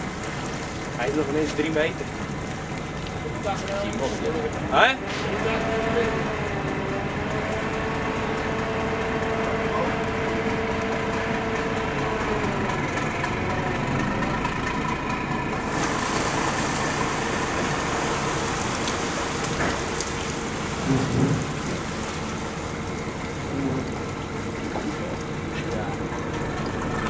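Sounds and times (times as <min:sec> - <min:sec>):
churned water hissing: 0:00.0 - 0:06.7, 0:15.5 - 0:27.0
diesel boat engine running: 0:00.0 - 0:27.0.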